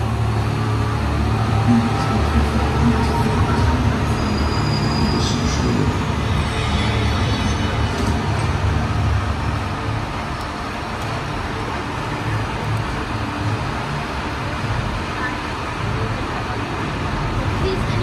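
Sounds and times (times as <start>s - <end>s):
tram rumbling: 0.0s - 18.0s.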